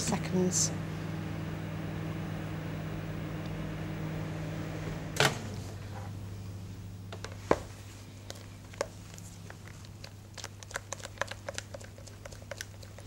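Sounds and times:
low hum: 0:00.0 - 0:07.1.

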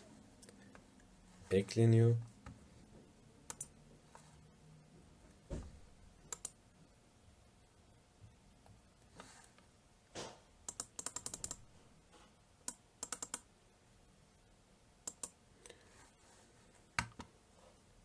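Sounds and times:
computer keyboard typing: 0:03.5 - 0:03.7, 0:10.7 - 0:11.6, 0:12.7 - 0:13.4, 0:15.1 - 0:15.4.

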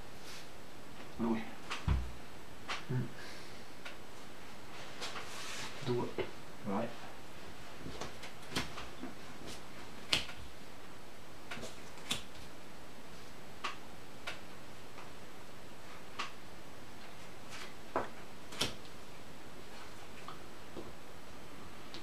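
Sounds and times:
steady hiss: 0:00.0 - 0:07.8
playing cards clicking on table: 0:10.0 - 0:10.4, 0:11.5 - 0:12.4.

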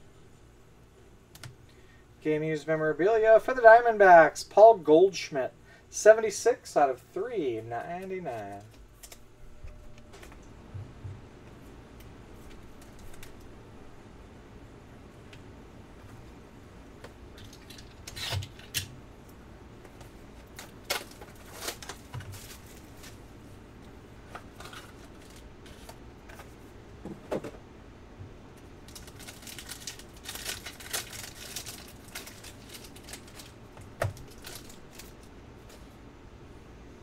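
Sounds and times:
foil pack crinkling: 0:17.3 - 0:18.9, 0:20.0 - 0:23.4, 0:24.2 - 0:26.6, 0:28.8 - 0:35.9.

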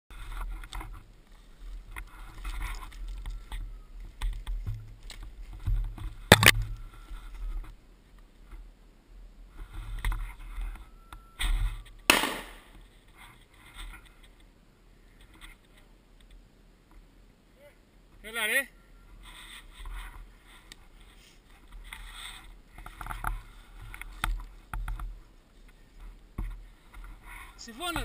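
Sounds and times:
footsteps crunching through dry brush: 0:00.1 - 0:07.8
sharp cracks of twigs: 0:12.0 - 0:12.8.

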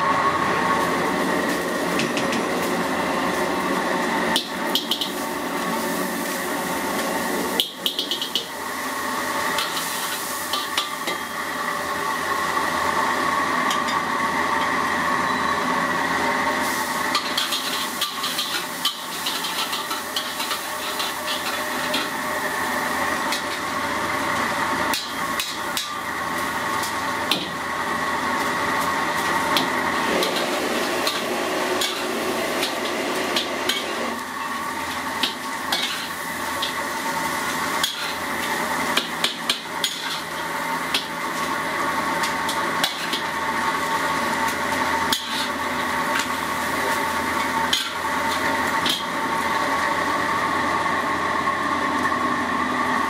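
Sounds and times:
hot oil sizzling: 0:00.0 - 0:53.0
metal spatula scraping a wok: 0:17.1 - 0:22.1, 0:35.7 - 0:36.8, 0:37.4 - 0:41.1, 0:42.8 - 0:43.3, 0:45.1 - 0:46.3.

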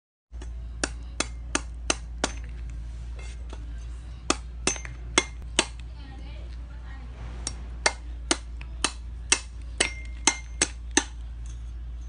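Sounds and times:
cleaver chopping coconut husk: 0:00.4 - 0:02.6, 0:04.2 - 0:05.9, 0:07.4 - 0:11.2.

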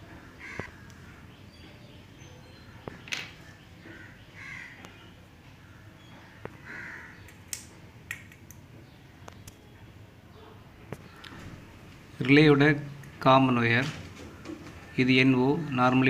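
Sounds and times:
bird cawing: 0:00.0 - 0:01.5, 0:02.7 - 0:07.4, 0:11.0 - 0:11.7, 0:13.9 - 0:16.0.

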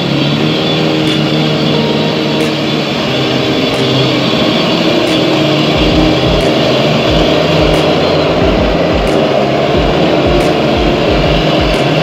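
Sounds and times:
engine and winch droning: 0:00.0 - 0:12.0
low thumps: 0:05.1 - 0:12.0.

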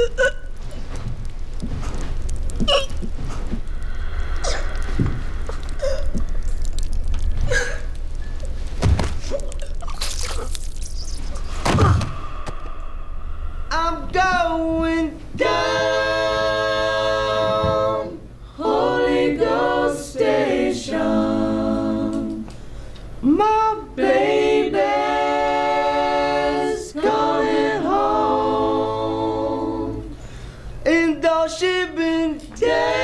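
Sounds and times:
voices singing long notes: 0:13.6 - 0:22.5, 0:23.2 - 0:30.2, 0:30.9 - 0:33.0.

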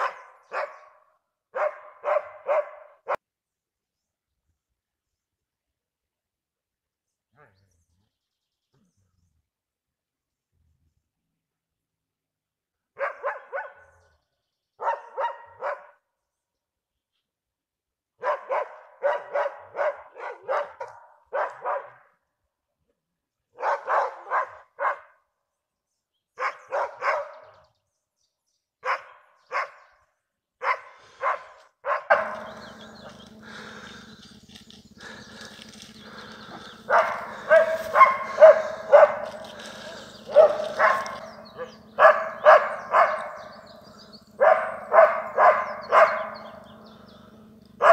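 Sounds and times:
dogs barking: 0:00.0 - 0:03.2, 0:13.0 - 0:14.0, 0:14.8 - 0:16.0, 0:18.2 - 0:22.1, 0:23.6 - 0:25.1, 0:26.4 - 0:27.6, 0:28.8 - 0:29.9, 0:30.6 - 0:47.9
steady low hum: 0:30.9 - 0:47.9.

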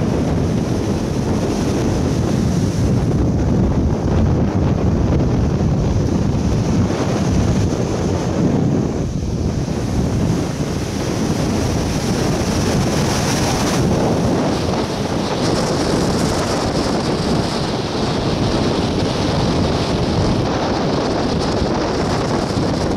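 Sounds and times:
surf breaking on beach: 0:00.0 - 0:22.9
wind buffeting microphone: 0:00.0 - 0:22.9.

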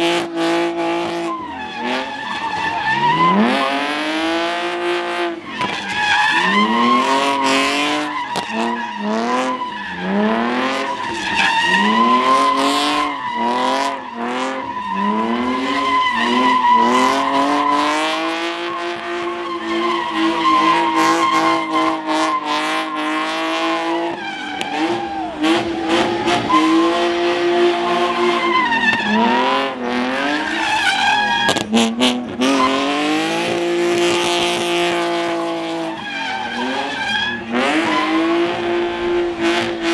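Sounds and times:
car engine revving hard: 0:00.0 - 0:39.9
tyres squealing: 0:01.2 - 0:33.2, 0:34.0 - 0:38.9.

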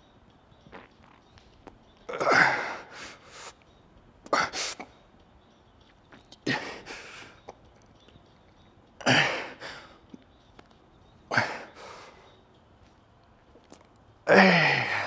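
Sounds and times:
man breathing hard: 0:02.2 - 0:03.6, 0:06.5 - 0:07.4, 0:11.3 - 0:12.3.

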